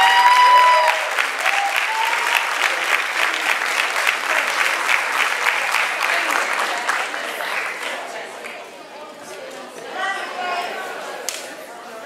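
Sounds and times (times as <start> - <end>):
high whooping cheer: 0.0 - 2.8
audience applauding: 0.0 - 8.6.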